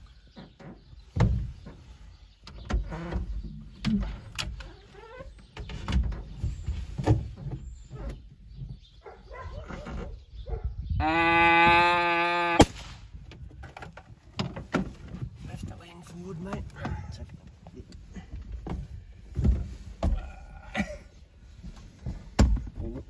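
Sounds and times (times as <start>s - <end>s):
rifle shot: 12.6s - 13.1s.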